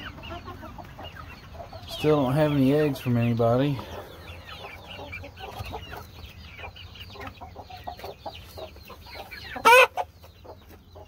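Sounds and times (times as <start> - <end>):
chickens clucking and chirping: 0.0 - 11.0
chicken squawk: 8.6 - 10.2.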